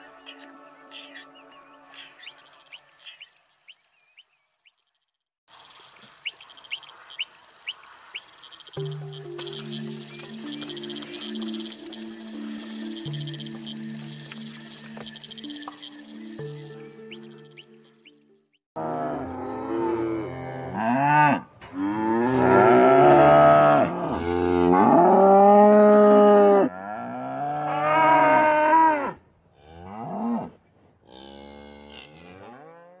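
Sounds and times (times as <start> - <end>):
cattle mooing: 18.8 - 30.5, 31.1 - 33.0.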